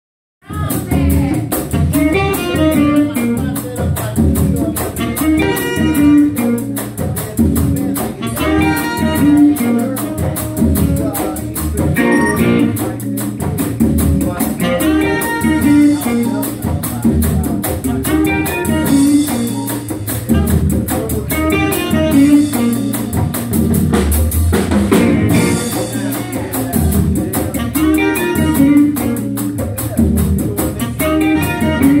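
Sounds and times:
drum kit with cymbals: 0:00.4 - 0:32.0
electric guitar: 0:00.5 - 0:32.0
keyboard: 0:00.7 - 0:32.0
saxophone: 0:01.7 - 0:03.6, 0:05.0 - 0:06.8, 0:08.2 - 0:11.3, 0:12.0 - 0:13.0, 0:14.6 - 0:16.4, 0:17.9 - 0:22.9, 0:27.4 - 0:29.4, 0:30.8 - 0:32.0.

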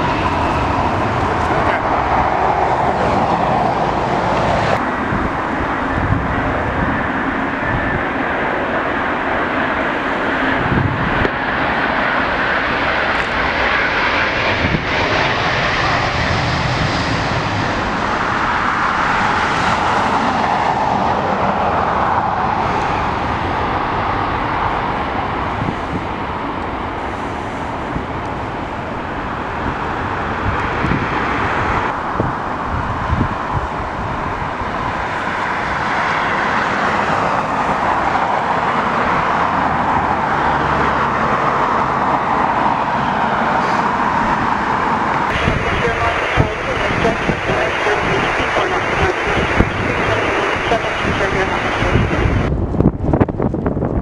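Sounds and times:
jet engine roar: 0:00.0 - 0:54.0
wind rumbling on microphone: 0:00.0 - 0:54.0.

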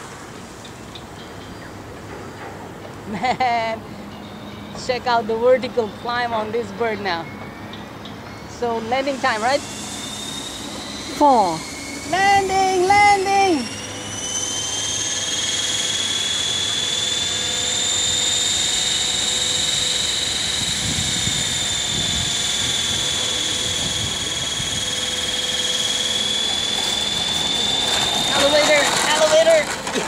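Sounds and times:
model plane motor whining: 0:08.6 - 0:30.0
plane clattering on paving: 0:28.0 - 0:30.0.

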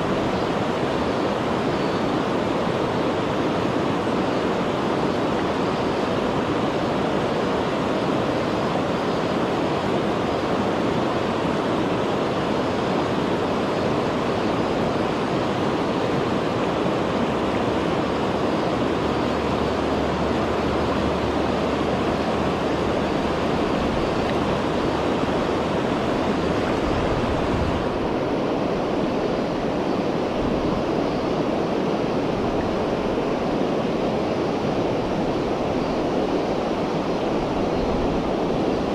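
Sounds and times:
river flowing over cobbles: 0:00.0 - 0:38.9.

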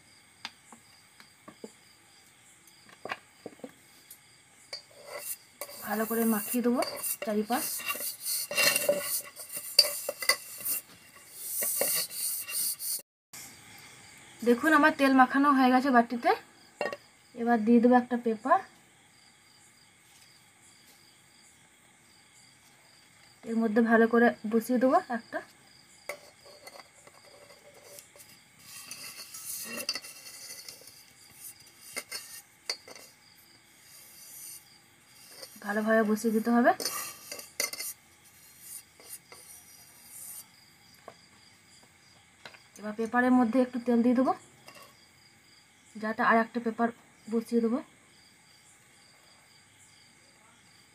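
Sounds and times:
fingers scraping on metal tin: 0:04.7 - 0:13.0, 0:26.1 - 0:33.2, 0:35.2 - 0:40.4.

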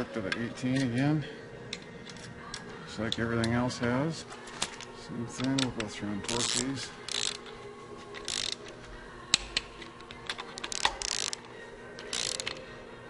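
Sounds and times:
torque wrench ratcheting: 0:06.3 - 0:07.5, 0:08.2 - 0:08.7, 0:09.3 - 0:12.6.

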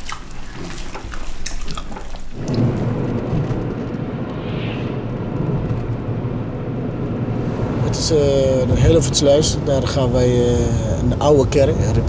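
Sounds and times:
road and engine rumble in car: 0:04.9 - 0:12.0.

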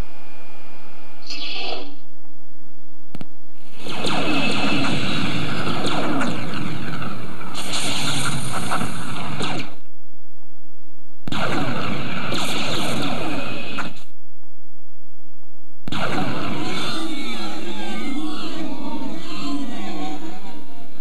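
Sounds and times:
steady low hum: 0:00.0 - 0:18.9
lightsaber swishing and crackling: 0:03.6 - 0:09.9, 0:11.3 - 0:14.1.

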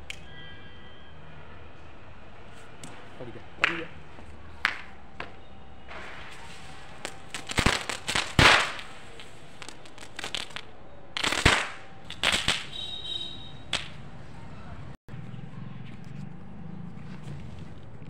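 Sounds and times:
firecracker sparks fizzing: 0:05.9 - 0:12.8
firecracker bangs: 0:05.9 - 0:14.0.

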